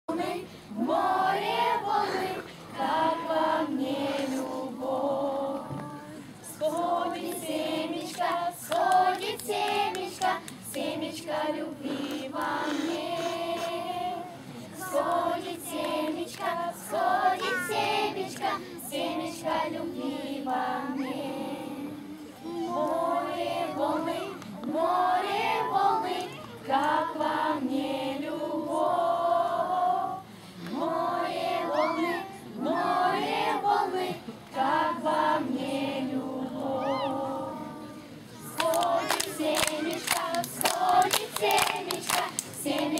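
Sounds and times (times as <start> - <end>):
young children singing: 0.1 - 42.9.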